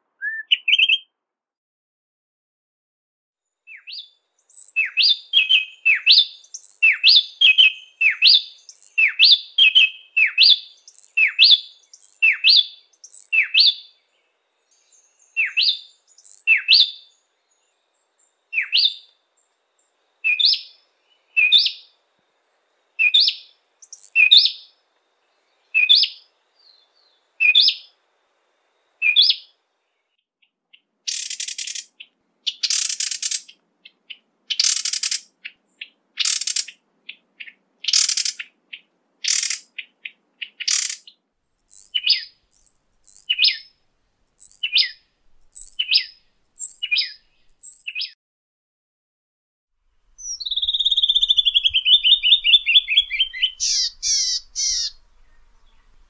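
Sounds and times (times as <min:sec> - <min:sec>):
bird calling sweeping notes: 0:00.2 - 0:01.1, 0:50.2 - 0:56.0
harsh rasping bird bursts: 0:31.1 - 0:33.5, 0:39.3 - 0:39.7, 0:50.2 - 0:56.0.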